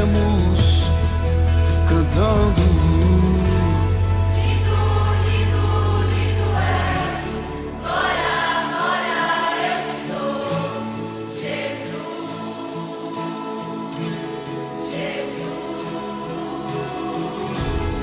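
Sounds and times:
deep bass: 0.0s - 7.0s
choir singing worship song: 3.0s - 18.0s.

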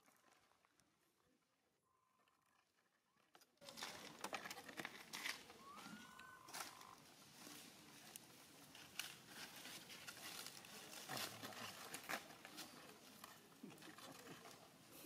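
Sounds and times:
rustling of dry leaves: 3.6s - 15.0s.

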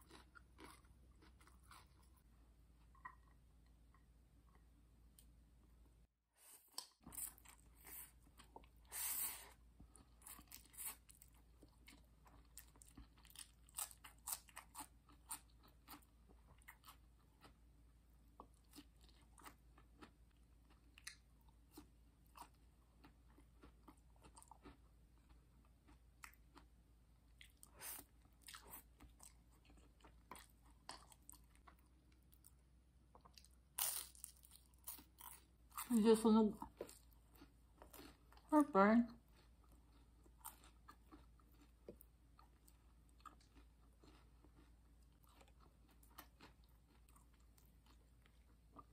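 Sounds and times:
chewing noodles with wet clicks: 9.8s - 17.7s, 18.3s - 26.7s, 27.3s - 35.9s, 39.2s - 48.9s.

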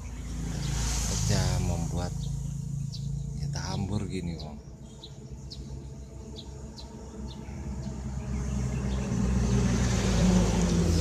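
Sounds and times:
vehicle engine running: 5.8s - 11.0s.

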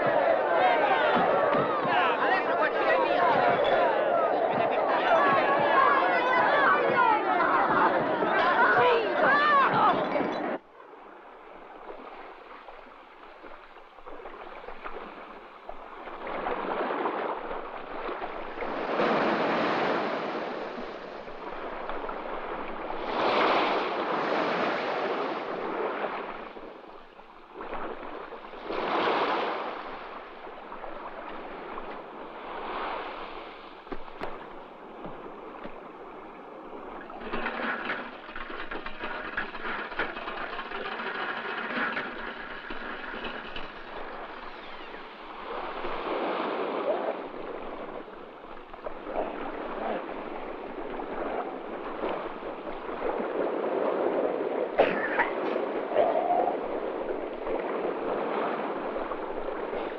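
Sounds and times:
small waves washing onto shore: 0.0s - 59.9s.

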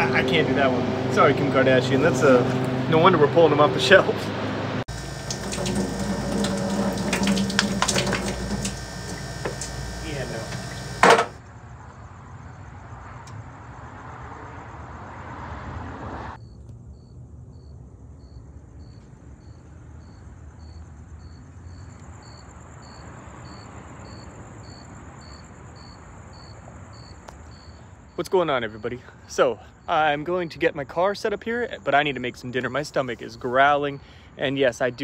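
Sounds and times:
steady low hum: 0.0s - 11.4s
cricket chirping: 4.9s - 15.8s, 16.4s - 35.0s.

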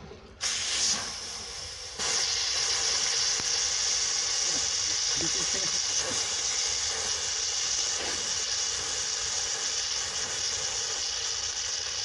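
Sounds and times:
water spraying hiss: 0.4s - 12.0s.

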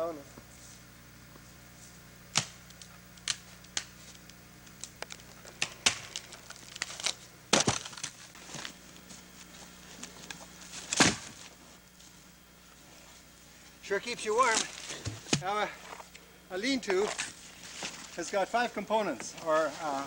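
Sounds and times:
twigs cracking underfoot: 1.3s - 12.5s, 14.4s - 16.2s.

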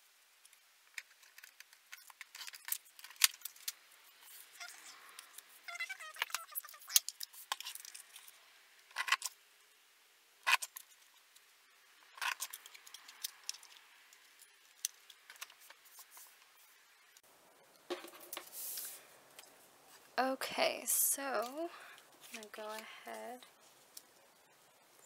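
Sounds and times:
paper rustling: 14.9s - 16.8s.

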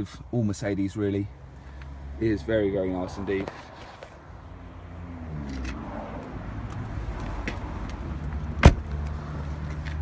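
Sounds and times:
car door shutting: 8.6s - 8.9s.

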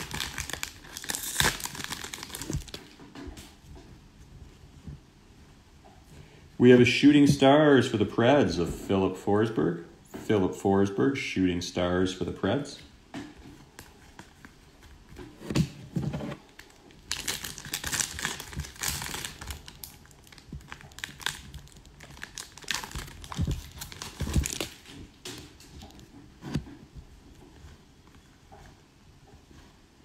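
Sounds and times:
shiny wrapper tearing and crinkling: 0.0s - 3.0s, 17.0s - 24.9s.

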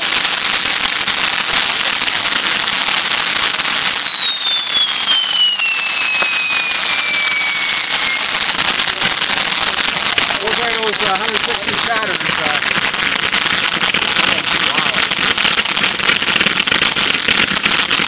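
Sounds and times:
fireworks hissing and crackling: 0.0s - 18.0s
whistle sliding down in pitch: 3.8s - 8.4s.

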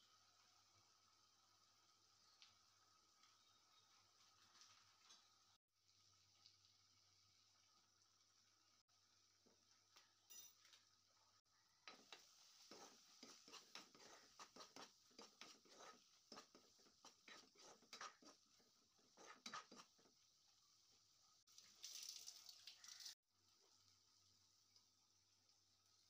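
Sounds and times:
spatula scraping a pan: 12.6s - 20.2s.

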